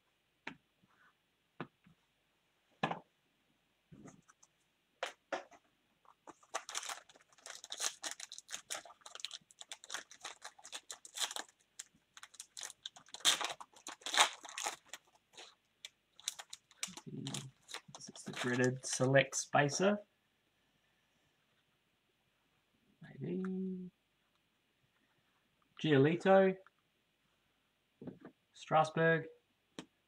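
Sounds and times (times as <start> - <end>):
foil wrapper crinkling and tearing: 6.2 - 15.6, 16.2 - 19.1.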